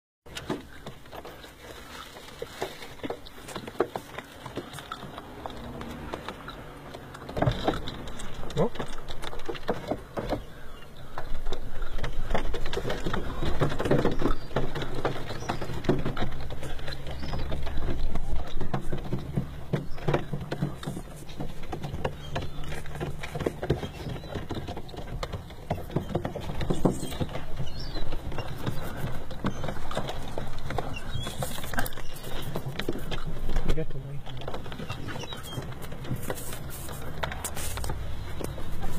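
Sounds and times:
pigeons tapping on car hood: 0.3 - 38.9.

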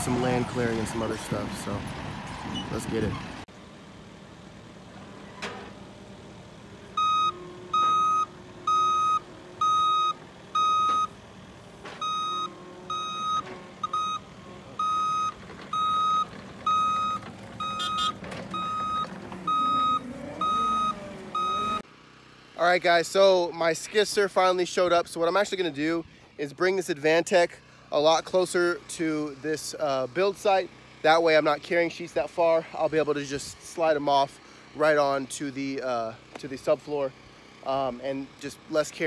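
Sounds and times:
loader engine running: 0.0 - 26.4
backup alarm beeping: 7.0 - 11.1, 12.0 - 21.8.

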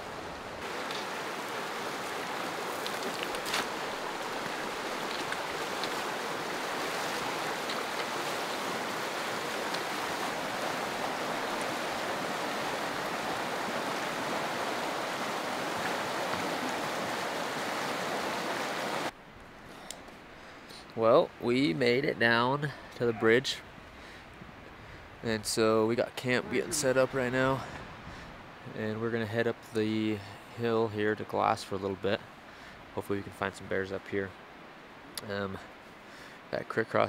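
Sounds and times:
river rushing: 0.0 - 19.2, 22.8 - 29.8.

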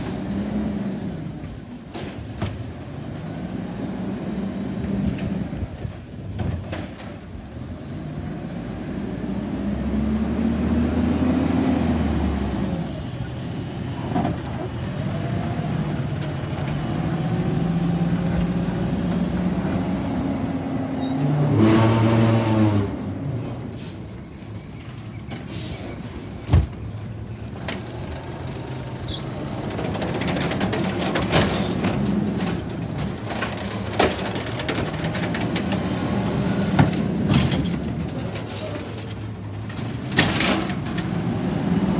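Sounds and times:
diesel truck engine accelerating: 0.0 - 6.4, 7.3 - 41.9
brake squeal: 13.6 - 14.4, 20.6 - 27.0, 29.0 - 29.4, 38.3 - 39.1.

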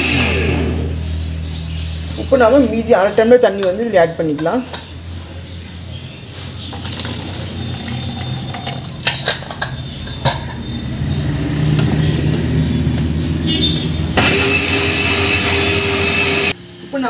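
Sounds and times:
mixer grinder motor running: 0.0 - 1.2, 6.8 - 9.0, 14.2 - 16.6
water pouring into steel jar: 6.6 - 9.1.

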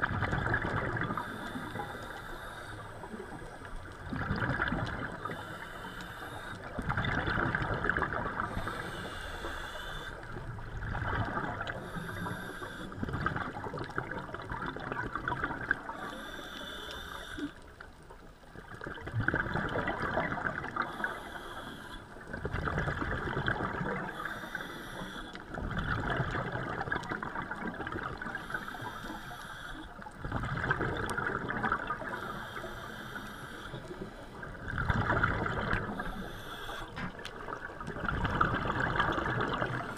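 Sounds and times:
regulator inhale hiss: 1.1 - 3.8, 5.1 - 6.8, 8.3 - 10.4, 11.6 - 13.0, 15.9 - 17.7, 20.8 - 22.2, 24.0 - 25.6, 28.2 - 30.1, 32.0 - 34.6, 35.8 - 37.2.

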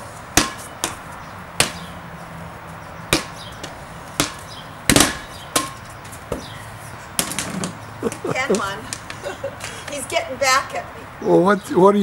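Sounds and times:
rubber ball slapped and bouncing: 3.1 - 3.4.

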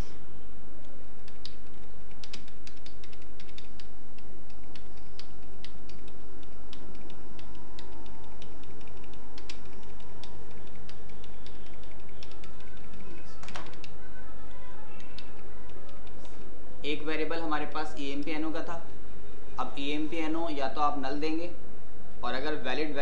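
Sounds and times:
steady low hum: 0.0 - 23.0
computer keyboard typing: 1.2 - 16.4.

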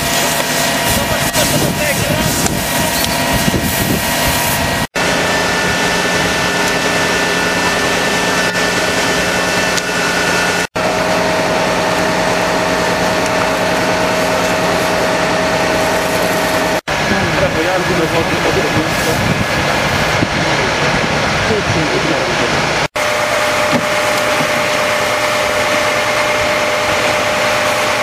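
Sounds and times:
engine droning: 0.0 - 28.0.

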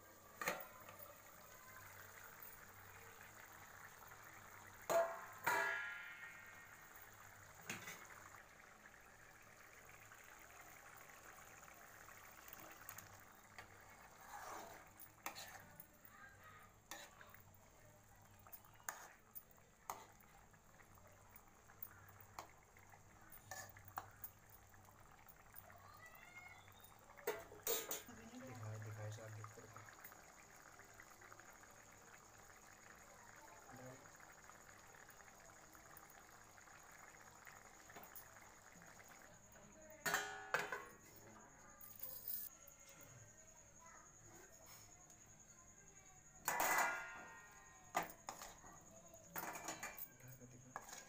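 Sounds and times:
faint steady hiss: 0.0 - 51.0
spoon stirring curry in a pan: 0.1 - 25.6, 46.5 - 50.0, 50.6 - 51.0
metallic clatter with ring: 27.3 - 28.2, 40.0 - 43.2, 46.4 - 48.7, 49.3 - 51.0.

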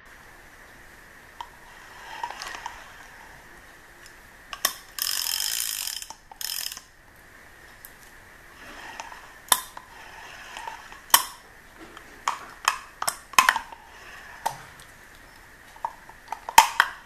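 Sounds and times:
fishing reel bail snapping shut: 4.6 - 6.9.

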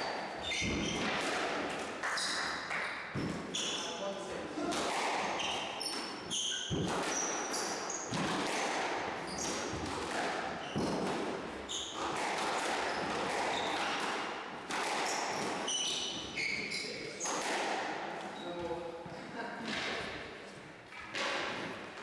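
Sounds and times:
squash ball hitting rackets and walls: 0.0 - 18.8, 19.6 - 22.0
trainers squeaking on wooden floor: 0.4 - 1.2, 2.0 - 4.0, 5.4 - 14.1, 14.8 - 17.4.

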